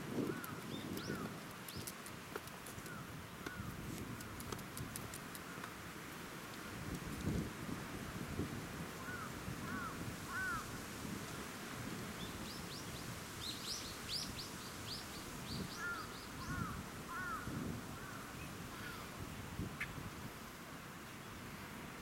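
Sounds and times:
low outdoor background noise: 0.0s - 22.0s
birds chirping: 13.5s - 17.4s.

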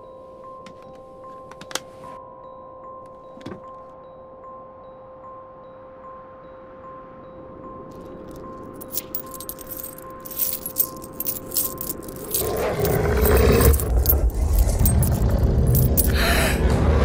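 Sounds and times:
metallic jingling and clinking: 7.9s - 16.2s
deep rumble: 12.5s - 17.0s.

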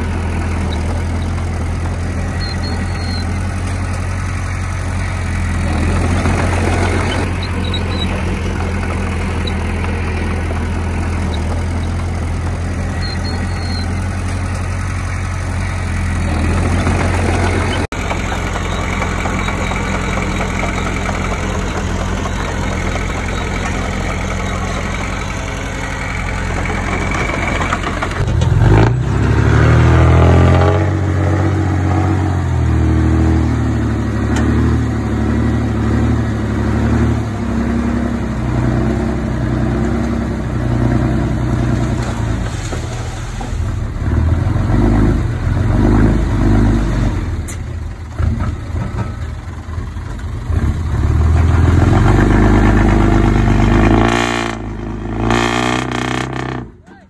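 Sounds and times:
engine knock: 0.0s - 28.9s
diesel engine revving: 0.0s - 57.0s.

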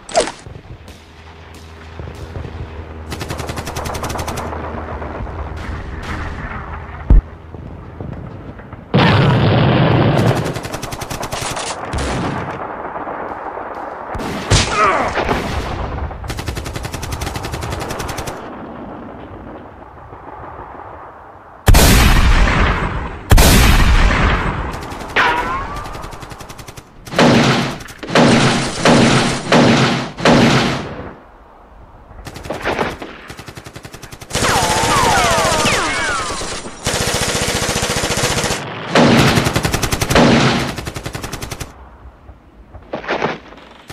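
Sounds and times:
machine-gun and rifle fire: 3.0s - 6.7s, 8.9s - 18.5s, 21.7s - 31.0s, 32.2s - 41.8s.

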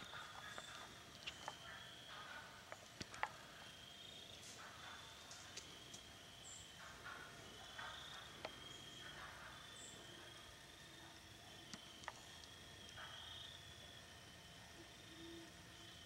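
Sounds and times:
twig clicks: 2.6s - 3.5s.

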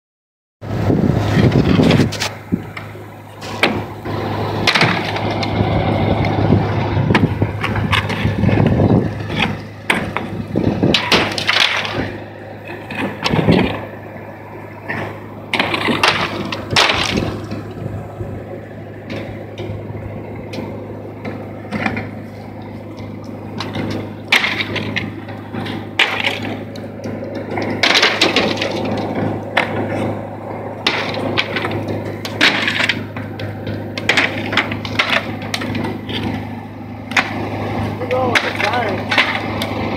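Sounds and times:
steady low hum: 0.6s - 39.9s
slates cracking and clattering: 4.6s - 5.6s, 9.2s - 13.8s, 14.9s - 17.6s, 23.0s - 30.2s, 30.8s - 36.4s, 38.1s - 39.7s.

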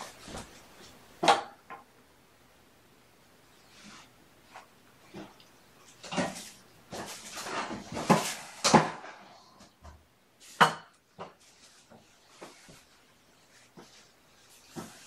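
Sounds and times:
scrapes knocks and rustles: 3.8s - 15.0s.

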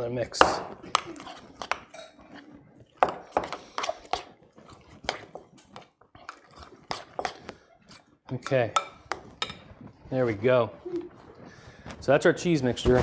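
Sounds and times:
metal spoon clinking glass bowl: 1.2s - 2.3s.

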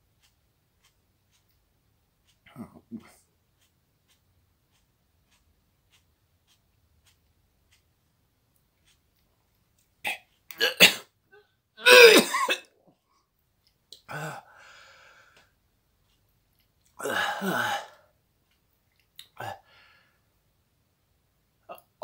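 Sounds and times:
man coughing: 10.6s - 11.1s, 11.8s - 12.7s.

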